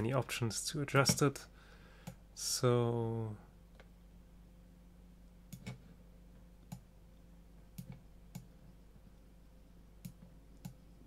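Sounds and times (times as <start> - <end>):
computer mouse clicks: 5.5 - 5.8, 7.7 - 8.5, 10.0 - 10.8.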